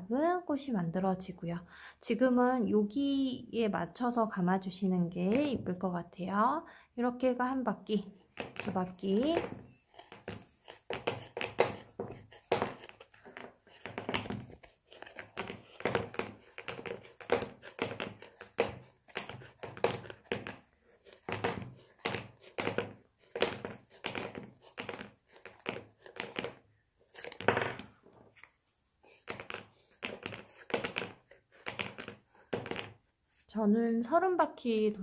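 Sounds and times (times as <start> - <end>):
thread rustling and scraping on card: 8.2 - 33.5.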